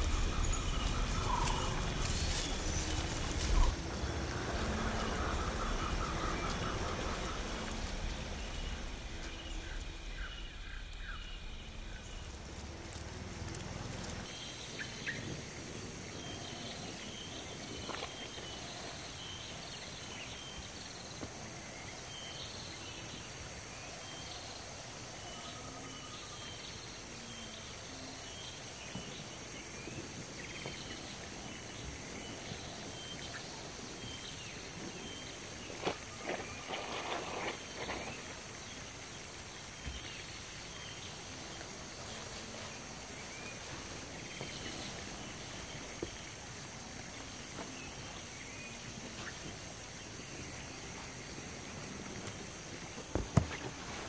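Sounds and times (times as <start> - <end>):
low rumble: 0.0 - 17.8
steady hiss: 0.0 - 54.0.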